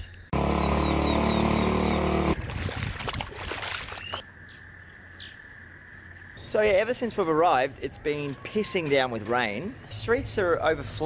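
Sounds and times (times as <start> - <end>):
flip-flops splashing through water: 2.4 - 4.2.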